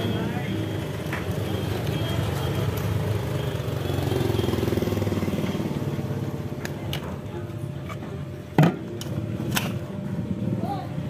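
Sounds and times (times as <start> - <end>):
motorcycle engine running: 0.0 - 6.7.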